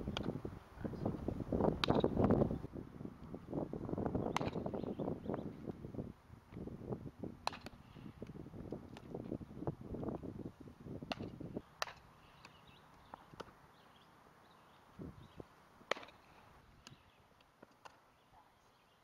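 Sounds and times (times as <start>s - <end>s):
ball hitting bat and glove: 0.1s - 0.4s, 1.6s - 2.5s, 4.2s - 4.8s, 7.4s - 9.4s, 10.9s - 13.6s, 15.8s - 17.0s.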